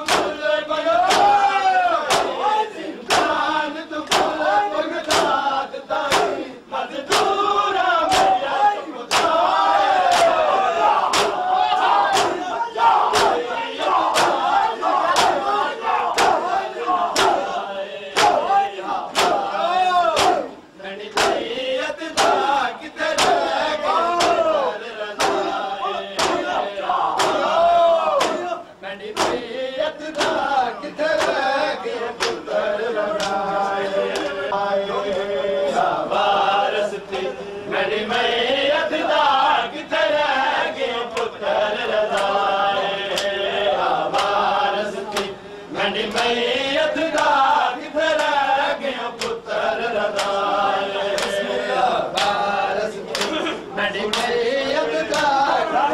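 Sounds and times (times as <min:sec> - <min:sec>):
hand slaps on chests: 0:00.0 - 0:00.4, 0:01.0 - 0:01.4, 0:02.1 - 0:02.4, 0:03.0 - 0:03.4, 0:04.0 - 0:04.4, 0:05.0 - 0:05.4, 0:06.1 - 0:06.4, 0:07.1 - 0:07.4, 0:08.1 - 0:08.4, 0:09.1 - 0:09.4, 0:10.1 - 0:10.4, 0:11.1 - 0:11.4, 0:12.1 - 0:12.4, 0:13.1 - 0:13.4, 0:14.1 - 0:14.5, 0:15.1 - 0:15.5, 0:17.2 - 0:17.4, 0:18.2 - 0:18.4, 0:19.1 - 0:19.5, 0:20.2 - 0:20.5, 0:21.1 - 0:21.4, 0:22.2 - 0:22.5, 0:23.2 - 0:23.4, 0:24.2 - 0:24.4, 0:25.2 - 0:25.5, 0:26.2 - 0:26.5, 0:27.2 - 0:27.5, 0:28.2 - 0:28.5, 0:29.2 - 0:29.4, 0:30.1 - 0:30.5, 0:31.2 - 0:31.5, 0:32.2 - 0:32.4, 0:43.1 - 0:43.3, 0:44.1 - 0:44.4, 0:45.1 - 0:45.3, 0:49.2 - 0:49.4, 0:50.1 - 0:50.4, 0:53.1 - 0:53.4, 0:55.1 - 0:55.4
men chanting together: 0:00.0 - 0:55.9.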